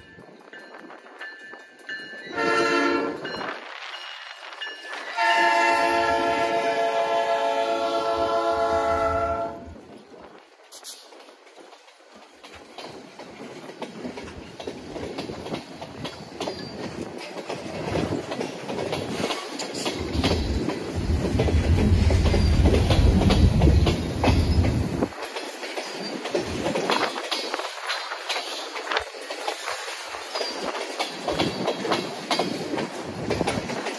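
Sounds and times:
diesel freight train passing: 0.0 - 33.9
wind buffeting microphone: 8.1 - 33.9
wheels clattering over rail joints: 9.9 - 33.9.

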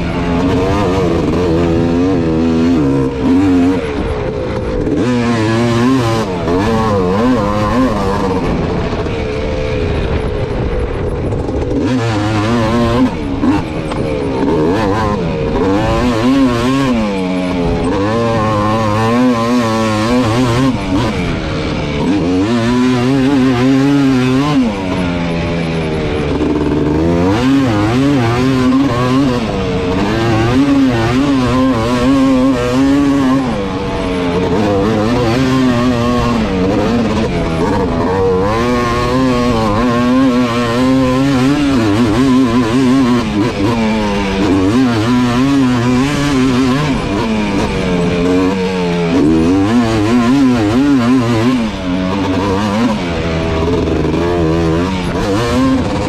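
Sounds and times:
atv engine revving: 0.0 - 56.0.

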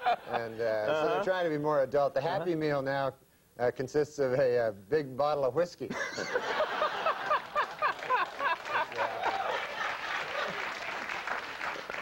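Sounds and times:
man laughing: 0.0 - 1.4, 5.9 - 9.6
audience laughing and applauding: 6.0 - 12.0.

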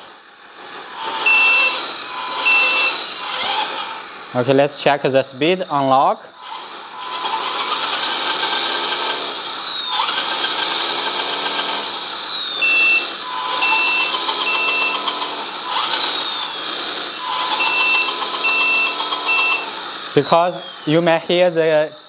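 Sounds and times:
diesel engine rising and falling: 0.0 - 22.0
falling whine of drive motor: 0.0 - 22.0
reversing beeps: 1.2 - 3.1, 12.6 - 15.1, 17.2 - 19.7.

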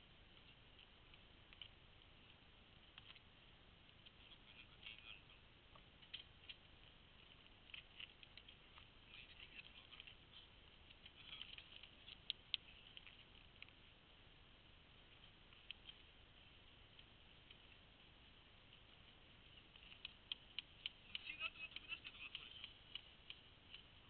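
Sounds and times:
faint rustling: 0.0 - 24.0
small clicks: 0.3 - 3.3, 5.7 - 13.9, 15.1 - 24.0
sharp ticks: 18.7 - 24.0.

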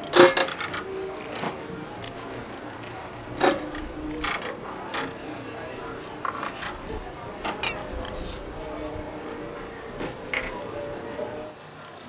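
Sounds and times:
wire baskets clinking on steel pot: 0.0 - 0.9, 5.8 - 11.4
steady background noise: 0.0 - 12.0.

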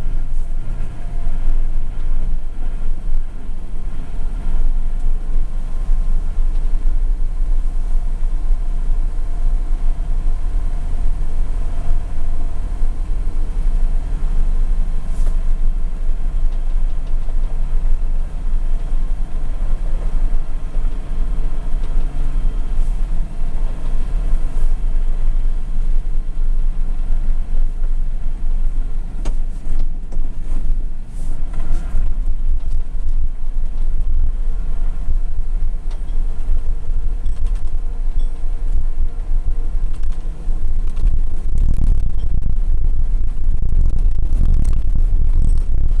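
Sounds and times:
truck engine droning: 0.0 - 46.0.

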